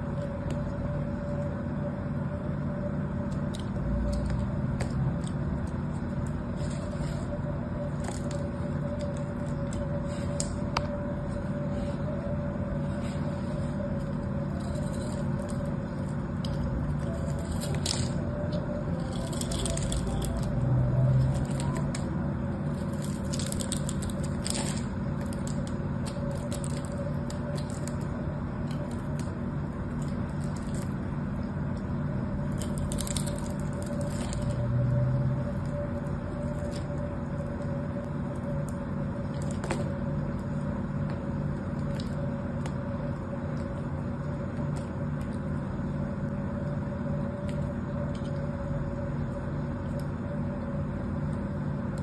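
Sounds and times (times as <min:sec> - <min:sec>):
steady low hum: 0:00.0 - 0:52.0
knife cutting soap crackling: 0:14.0 - 0:22.0.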